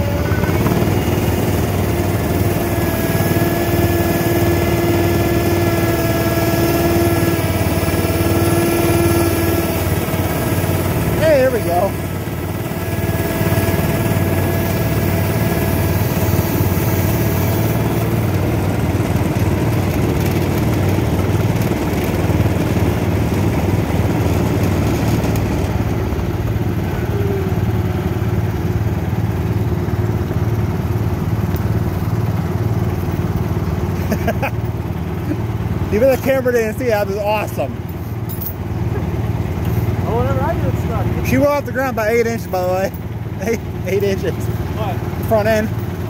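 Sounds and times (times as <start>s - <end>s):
thin whine: 0.0s - 19.4s
garden tractor engine: 0.0s - 46.0s.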